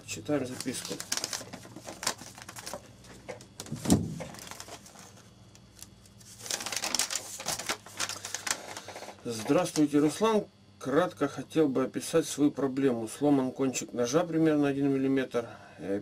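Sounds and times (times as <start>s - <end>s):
paper rustling and crinkling: 0.3s - 9.8s.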